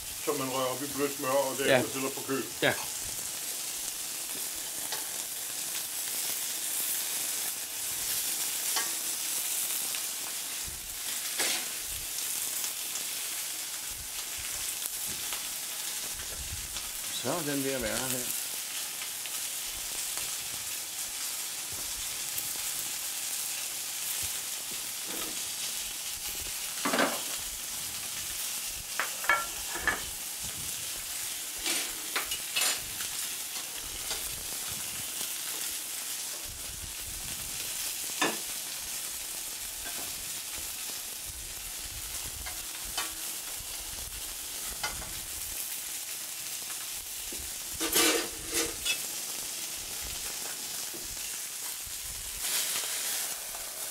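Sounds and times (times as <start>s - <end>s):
fish sizzling in a pan: 0.0s - 53.9s
kitchen utensils clinking: 29.0s - 30.1s, 31.6s - 32.8s, 47.8s - 49.1s.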